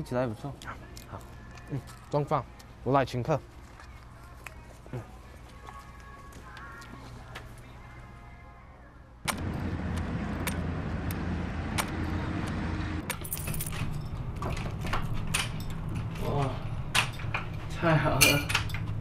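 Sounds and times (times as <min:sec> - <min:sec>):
footsteps on pavement: 0:03.4 - 0:07.6
distant road traffic rumble: 0:09.3 - 0:17.7
door opening: 0:11.7 - 0:19.0
keys jangling: 0:13.1 - 0:16.2, 0:16.9 - 0:17.6, 0:18.2 - 0:19.0.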